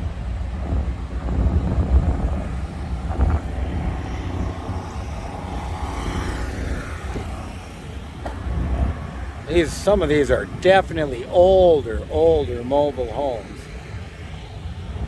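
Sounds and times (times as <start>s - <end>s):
vehicle rumbling: 0.0s - 15.0s
wind buffeting microphone: 0.0s - 15.0s.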